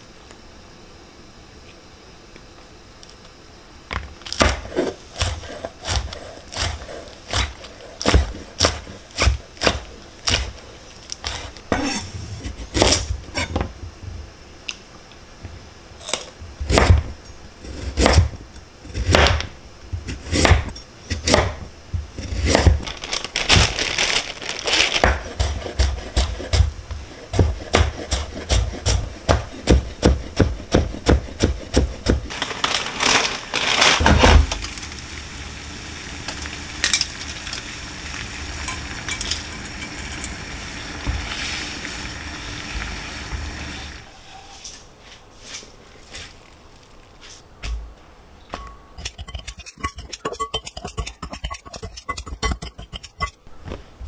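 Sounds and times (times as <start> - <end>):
knife chopping on wooden board: 4.4 - 10.5, 20.2 - 21.6, 25.0 - 26.7, 27.3 - 32.3.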